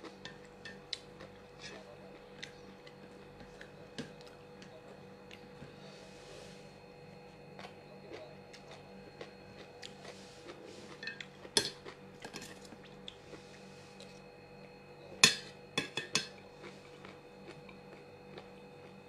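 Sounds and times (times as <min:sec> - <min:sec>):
utensils clinking against dishes: 0:11.0 - 0:12.7, 0:15.2 - 0:16.4.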